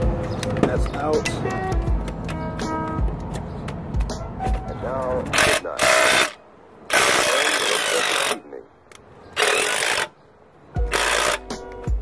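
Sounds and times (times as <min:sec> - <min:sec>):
cordless power tool bursts: 0:05.3 - 0:08.4, 0:09.4 - 0:10.2, 0:10.8 - 0:11.5.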